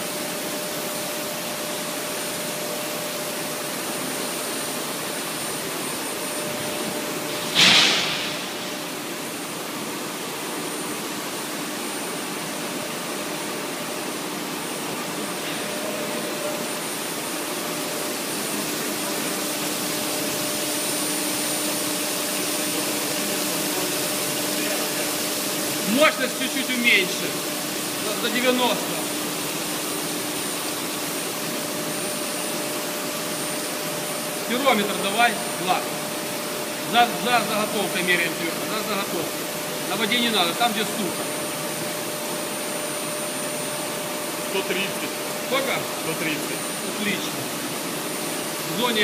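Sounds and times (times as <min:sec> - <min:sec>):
loud burst of hiss: 0:07.4 - 0:09.2.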